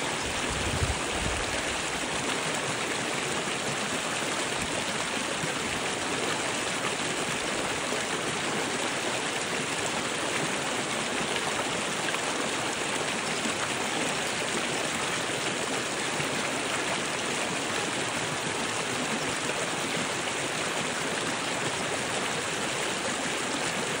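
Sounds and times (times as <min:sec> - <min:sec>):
creek water rushing over rocks: 0:00.0 - 0:24.0.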